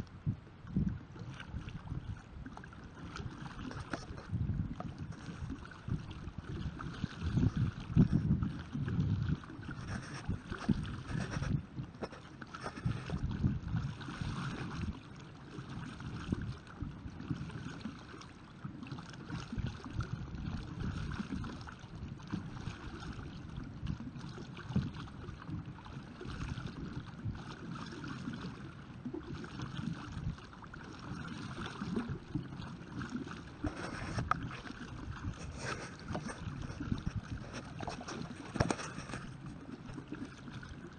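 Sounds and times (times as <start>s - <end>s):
wind buffeting microphone: 0.0s - 15.0s, 33.5s - 40.4s
water splashing and lapping: 0.0s - 40.9s.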